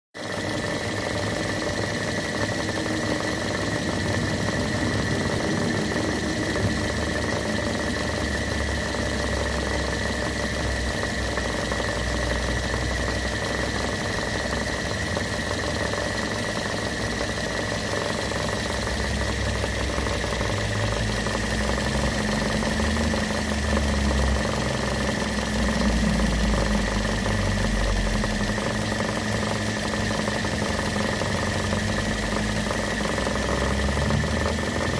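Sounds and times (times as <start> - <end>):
car engine idling: 0.2 - 34.9
high whine: 2.2 - 12.1.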